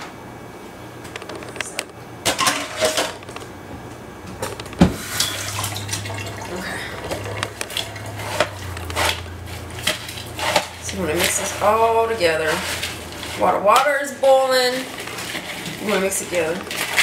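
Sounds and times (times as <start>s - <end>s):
low steady hum: 0.0s - 17.0s
dishes and utensils clattering: 1.3s - 3.4s, 4.4s - 11.8s.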